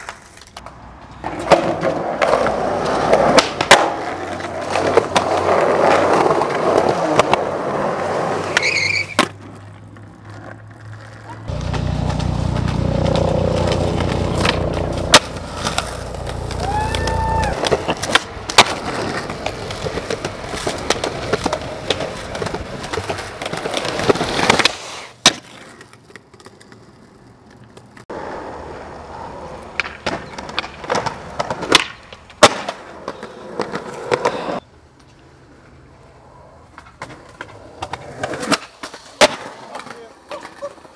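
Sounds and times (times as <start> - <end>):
skateboard clacking: 0.0 - 28.5, 29.3 - 35.3, 36.6 - 40.9
skateboard wheels rolling: 0.0 - 40.9.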